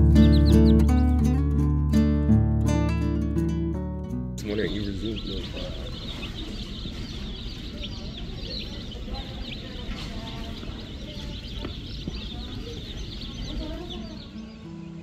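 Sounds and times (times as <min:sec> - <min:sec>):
baby chicks peeping: 0:00.0 - 0:01.7, 0:04.4 - 0:15.0.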